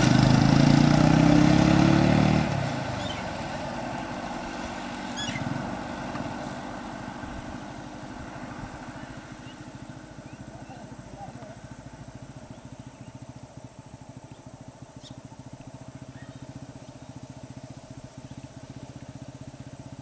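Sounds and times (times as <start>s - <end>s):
minivan engine running: 0.0s - 20.0s
faint high chirps: 14.2s - 15.4s, 16.0s - 17.3s.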